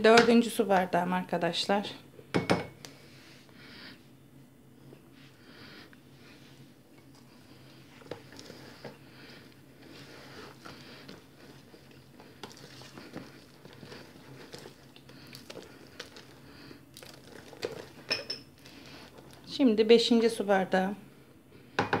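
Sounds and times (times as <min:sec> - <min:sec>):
hand squishing wet dough: 0:07.2 - 0:19.5.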